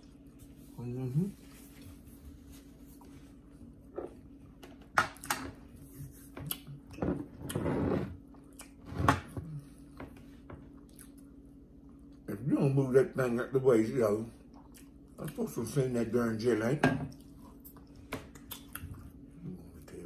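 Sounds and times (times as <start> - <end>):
person chewing: 6.2 - 7.6, 8.2 - 8.9, 10.7 - 12.2, 14.4 - 15.4, 17.1 - 19.4.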